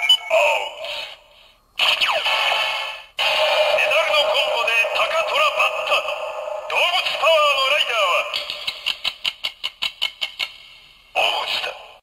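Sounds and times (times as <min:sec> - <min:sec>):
tinny voice announcement: 0:03.6 - 0:08.4, 0:11.2 - 0:12.0.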